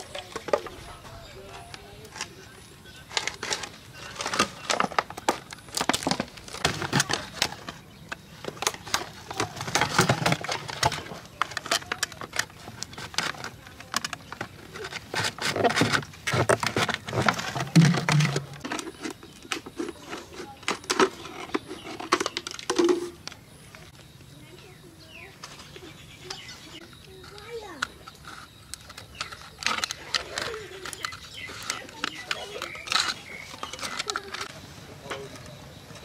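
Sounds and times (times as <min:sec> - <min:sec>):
plastic bottle crackling and crinkling: 0:00.0 - 0:24.0, 0:25.4 - 0:36.0
knife and scissors cutting plastic: 0:08.4 - 0:23.2, 0:26.3 - 0:35.5.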